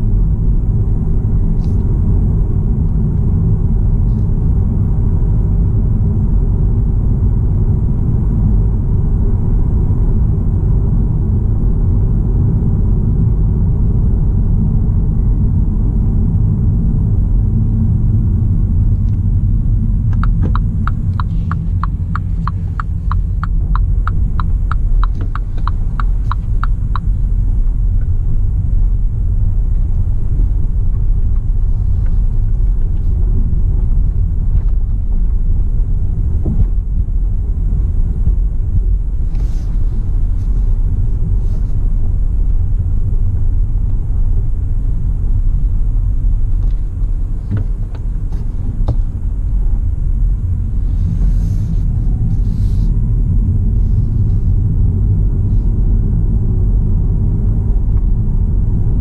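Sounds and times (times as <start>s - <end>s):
car engine low rumble: 0.0s - 59.0s.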